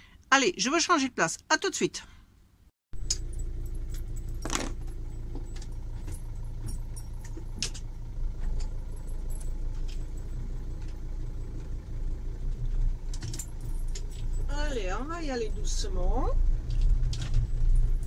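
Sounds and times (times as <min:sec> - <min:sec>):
engine idling low hum: 0:03.0 - 0:18.0
light clicks and rattles: 0:12.4 - 0:14.5.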